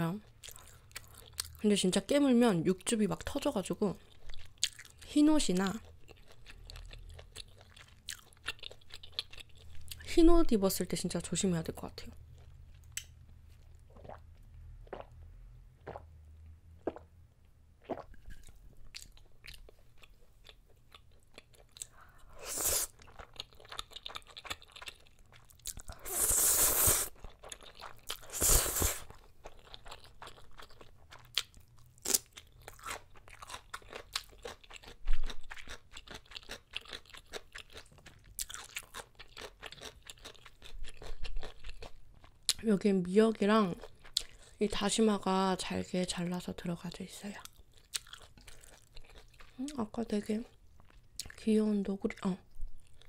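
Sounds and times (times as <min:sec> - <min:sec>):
chewing with wet clicks: 0:00.3 - 0:01.6, 0:04.0 - 0:10.1, 0:12.2 - 0:15.2, 0:15.8 - 0:22.0, 0:23.0 - 0:26.0, 0:27.2 - 0:28.3, 0:29.1 - 0:42.7, 0:43.7 - 0:44.5, 0:47.3 - 0:49.9, 0:50.5 - 0:51.5, 0:52.2 - 0:53.0
slurping noodles: 0:22.4 - 0:23.0, 0:25.9 - 0:27.2, 0:28.2 - 0:29.2.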